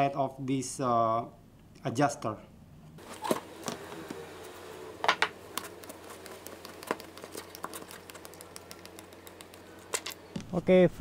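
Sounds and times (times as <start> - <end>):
light scattered ticks: 5.5 - 10.2.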